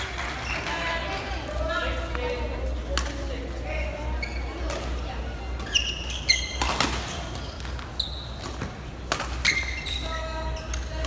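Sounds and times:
shoes squeaking on court: 0:00.2 - 0:01.0, 0:04.0 - 0:11.0
rackets hitting shuttlecock: 0:06.5 - 0:09.8.

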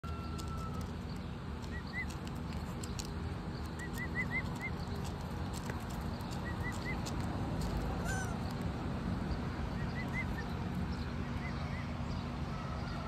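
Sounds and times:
chicks chirping whistles: 0:03.8 - 0:04.8.

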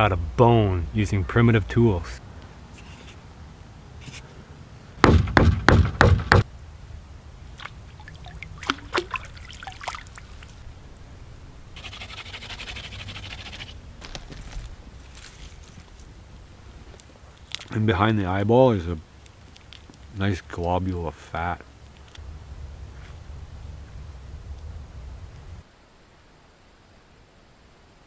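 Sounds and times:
heavy knocks: 0:05.0 - 0:06.5
water splashing and dripping: 0:07.4 - 0:10.7
crackly rustle: 0:07.4 - 0:26.0.

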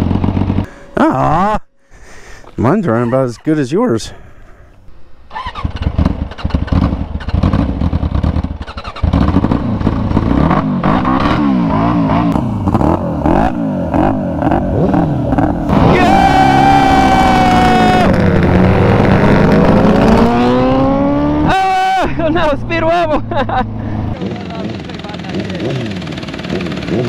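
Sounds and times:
sport bike engine at high revs: 0:00.0 - 0:00.7, 0:05.5 - 0:21.8, 0:23.4 - 0:27.0
go-kart engine revving unevenly: 0:05.4 - 0:27.0.

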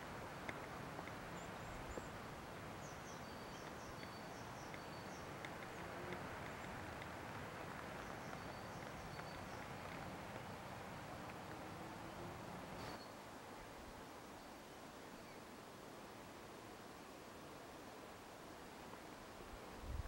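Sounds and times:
low outdoor hiss: 0:00.0 - 0:20.0
small bird chirping: 0:02.8 - 0:06.8, 0:08.0 - 0:10.1.

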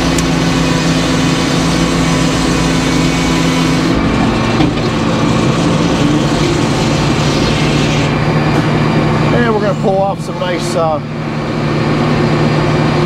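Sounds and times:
circular saw blade cutting log: 0:00.0 - 0:10.4
mill engine running: 0:00.0 - 0:13.0.

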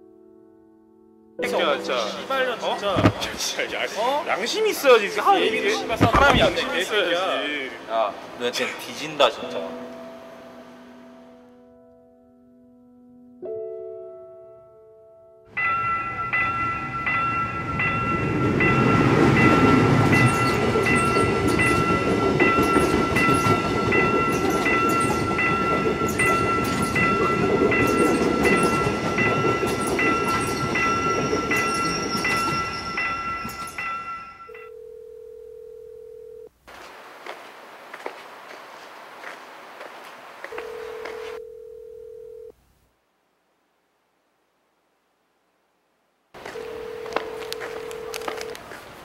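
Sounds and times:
level-crossing warning bell dinging: 0:15.5 - 0:36.5, 0:46.4 - 0:48.6
rumble of passing train: 0:15.6 - 0:34.6
steady telephone tone: 0:34.5 - 0:36.5, 0:40.5 - 0:42.6, 0:46.4 - 0:48.6.

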